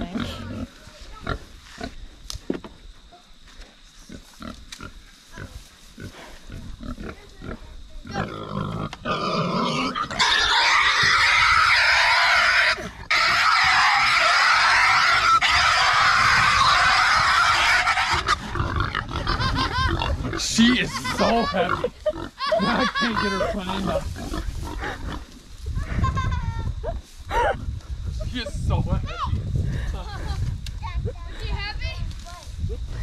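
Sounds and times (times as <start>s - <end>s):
pig screaming loudly: 9.1s - 21.8s.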